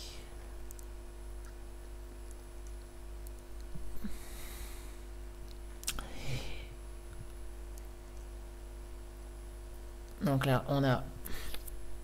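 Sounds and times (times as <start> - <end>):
steady low hum: 0.0 - 12.0
click: 0.7 - 1.6
person breathing: 3.9 - 5.2, 6.0 - 6.8, 11.2 - 11.7.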